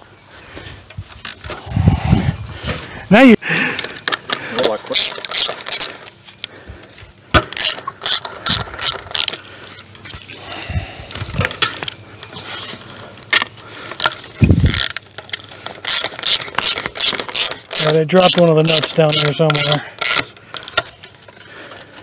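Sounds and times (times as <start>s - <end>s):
ratchet wrench clicking: 4.9s - 5.9s, 7.6s - 9.4s, 14.4s - 20.8s.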